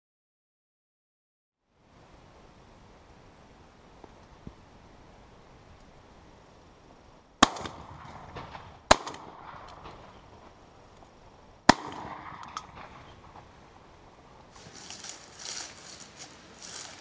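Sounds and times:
shotgun shots: 0:07.4 - 0:10.5, 0:11.7 - 0:13.5.

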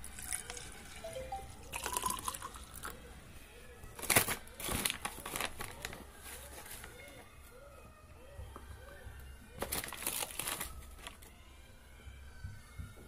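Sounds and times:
water pouring into plastic cup: 0:00.0 - 0:02.9
foil pouch crinkling: 0:04.0 - 0:07.0, 0:09.6 - 0:11.3.

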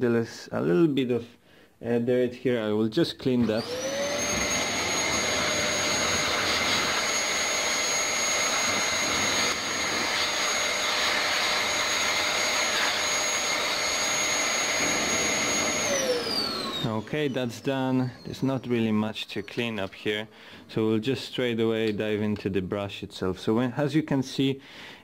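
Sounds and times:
vacuum motor winding down: 0:03.4 - 0:19.9
handheld vacuum cleaner running: 0:03.4 - 0:20.3.

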